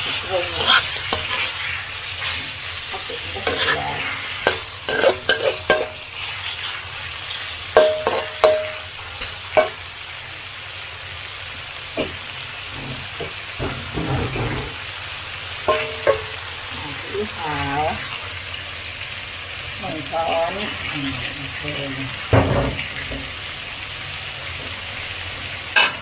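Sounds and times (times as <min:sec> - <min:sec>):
metal spatula scraping a pan: 0:00.0 - 0:09.8, 0:15.6 - 0:16.4
meat sizzling in a pan: 0:00.0 - 0:26.0.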